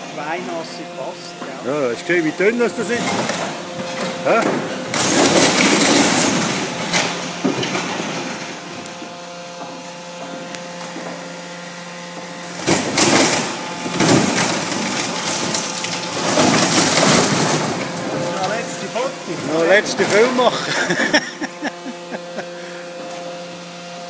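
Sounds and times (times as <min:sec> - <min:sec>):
machine hum: 0:00.0 - 0:24.0
boat hull cracking and crunching: 0:12.6 - 0:18.6.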